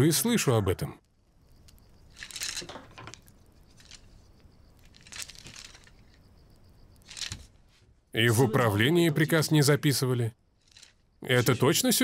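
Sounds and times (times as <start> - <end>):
soft rustles: 1.5 - 6.3, 6.9 - 8.1, 10.6 - 11.1.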